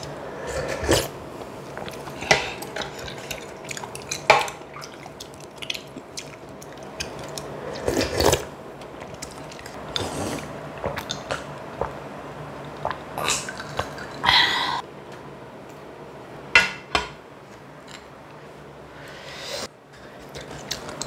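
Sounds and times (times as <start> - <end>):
slurping noodles: 0.4 - 1.2, 4.9 - 8.5, 9.2 - 11.9
wet chewing: 1.7 - 12.0, 20.2 - 21.0.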